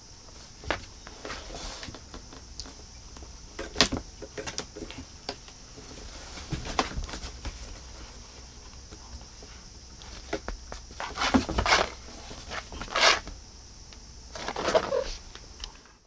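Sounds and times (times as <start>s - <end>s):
faint high hiss: 0.0s - 16.0s
cat scratching cardboard box: 10.2s - 13.3s.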